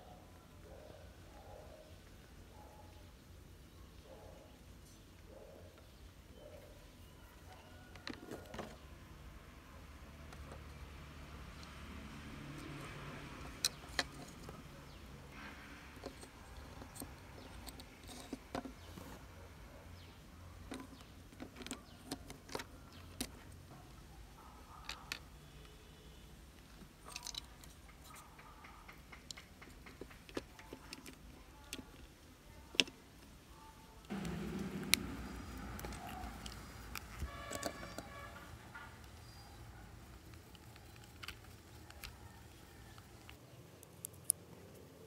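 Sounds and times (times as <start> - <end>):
plastic parts clicking and tapping: 13.4 - 15.0, 16.0 - 19.2, 20.6 - 23.6, 26.6 - 33.3, 34.1 - 44.4.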